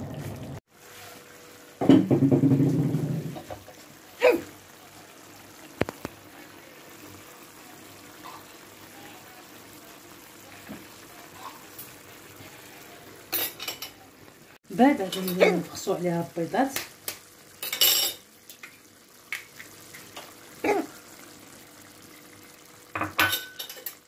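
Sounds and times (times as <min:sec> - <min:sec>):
sauce bubbling: 0:00.0 - 0:13.3, 0:18.2 - 0:23.0.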